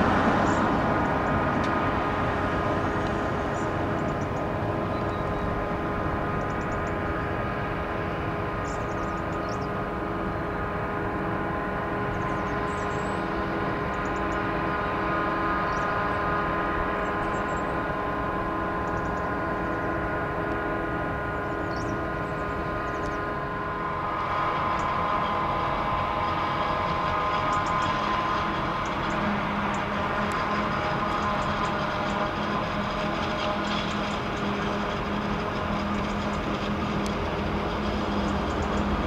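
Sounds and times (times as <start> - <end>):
harvester and tractor engines droning: 0.0 - 39.0.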